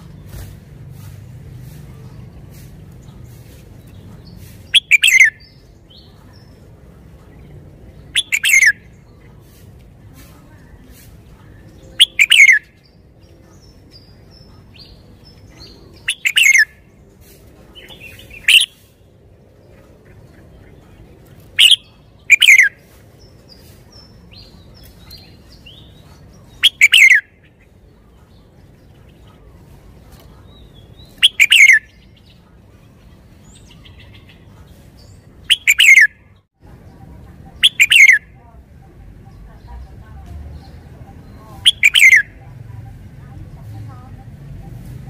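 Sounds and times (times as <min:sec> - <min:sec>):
high bird chirps: 0:02.5 - 0:06.6, 0:07.4 - 0:09.6, 0:11.6 - 0:16.9, 0:17.8 - 0:19.1, 0:21.6 - 0:29.4, 0:30.4 - 0:36.4, 0:37.0 - 0:44.9.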